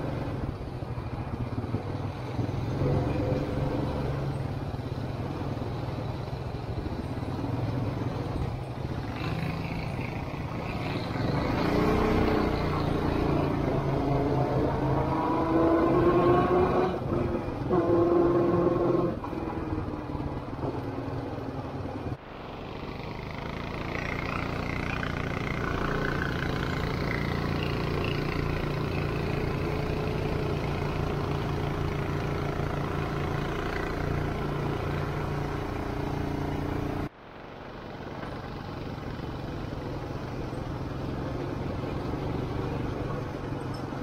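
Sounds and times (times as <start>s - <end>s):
atv engine running: 18.3s - 44.0s.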